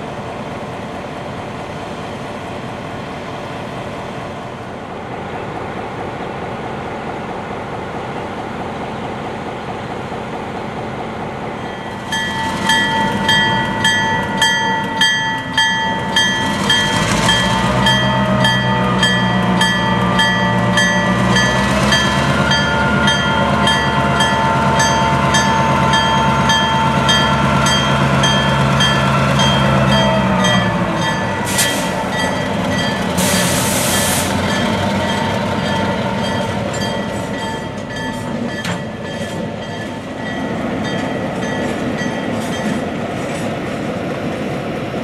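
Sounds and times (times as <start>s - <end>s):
diesel locomotive engine running: 0.0s - 45.0s
locomotive bell ringing: 11.6s - 43.0s.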